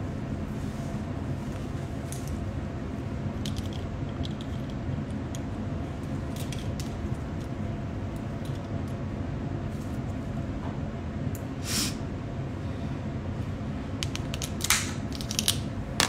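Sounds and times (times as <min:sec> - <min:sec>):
room noise rumble: 0:00.0 - 0:16.0
sunglasses handling clicks and rustles: 0:14.0 - 0:15.6.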